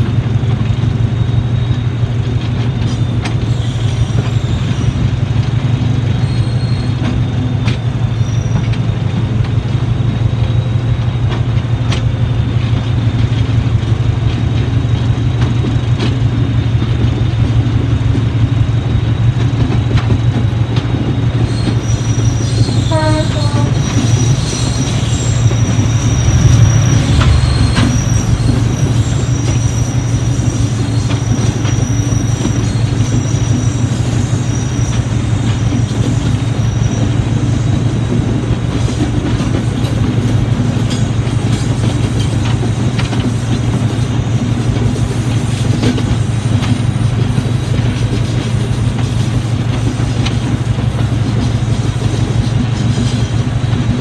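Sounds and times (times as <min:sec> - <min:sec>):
diesel locomotive engine throbbing: 0:00.0 - 0:54.0
train wheels rumbling on rails: 0:00.0 - 0:54.0
wheel flanges squealing: 0:02.7 - 0:09.2, 0:14.3 - 0:54.0.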